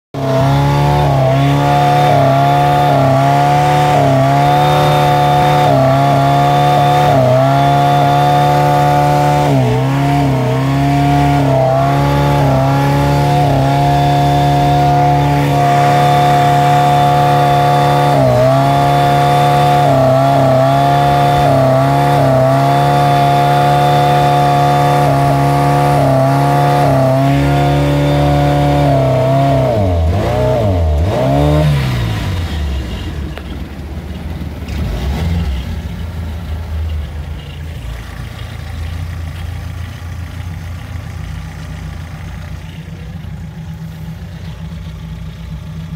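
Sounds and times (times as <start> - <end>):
boat engine misfiring: 11.4 - 45.9.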